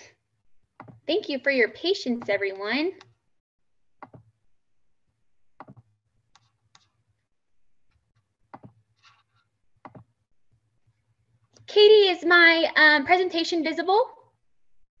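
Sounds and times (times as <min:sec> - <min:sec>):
computer mouse clicks: 0:03.0 - 0:03.2, 0:05.6 - 0:07.0, 0:08.5 - 0:10.1.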